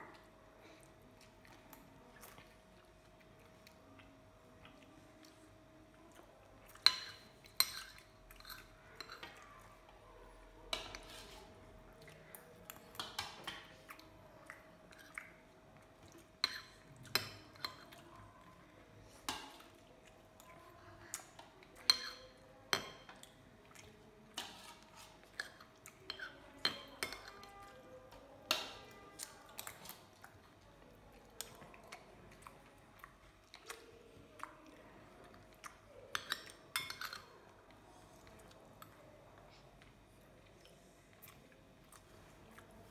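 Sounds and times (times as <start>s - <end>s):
metal spoon clinking on a bowl: 6.8s - 9.4s, 21.8s - 23.2s, 24.4s - 27.8s, 36.1s - 37.3s.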